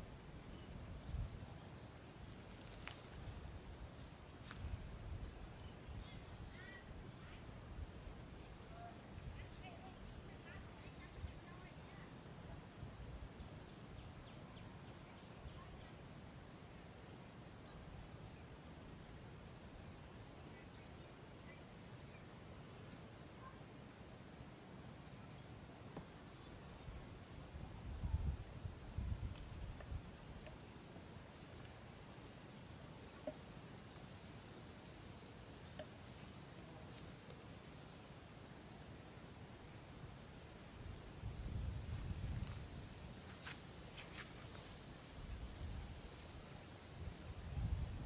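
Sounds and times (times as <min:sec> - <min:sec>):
short insect chirps: 0:00.0 - 0:12.2, 0:40.6 - 0:48.0
insects humming: 0:00.0 - 0:48.0.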